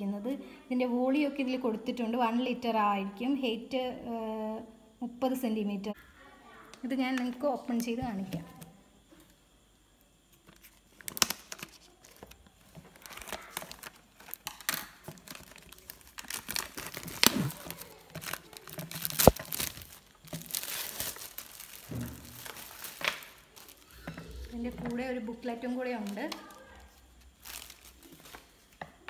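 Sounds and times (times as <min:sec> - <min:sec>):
plastic wrapping crinkling: 0:10.4 - 0:29.0.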